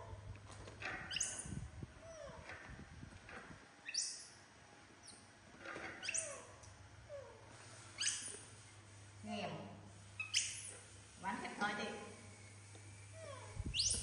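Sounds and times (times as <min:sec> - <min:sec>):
monkey high squeaks: 0:00.9 - 0:02.4, 0:05.9 - 0:06.6, 0:08.0 - 0:08.4, 0:10.2 - 0:10.8, 0:13.2 - 0:14.0.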